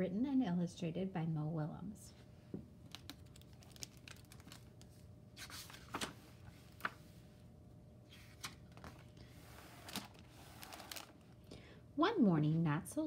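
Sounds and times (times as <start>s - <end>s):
book pages turning: 2.8s - 7.2s, 8.1s - 11.4s
paper rustling: 2.8s - 7.2s, 8.1s - 11.4s.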